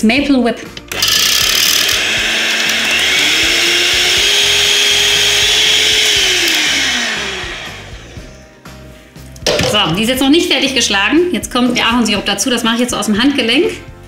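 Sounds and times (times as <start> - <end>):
electric hand mixer whine: 0.8 - 8.5, 12.7 - 13.9.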